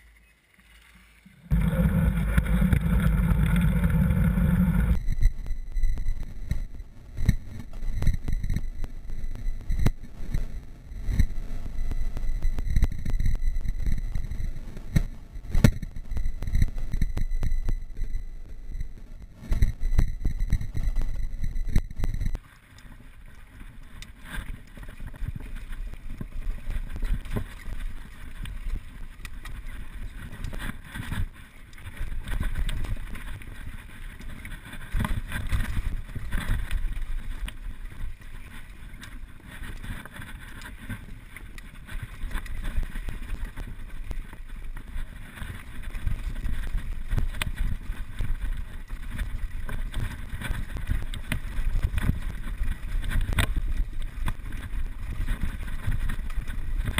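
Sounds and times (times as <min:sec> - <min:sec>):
tyres rolling over gravel: 0:01.0 - 0:05.0.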